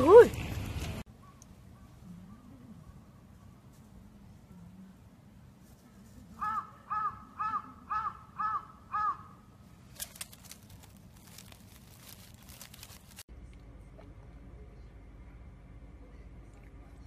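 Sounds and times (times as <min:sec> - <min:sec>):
bird calling: 0:06.4 - 0:09.5.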